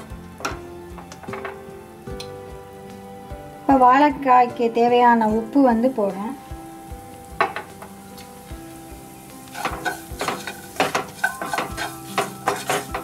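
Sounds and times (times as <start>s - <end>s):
onions sizzling in oil: 4.9s - 13.0s
wooden spatula scraping a pan: 9.5s - 13.0s.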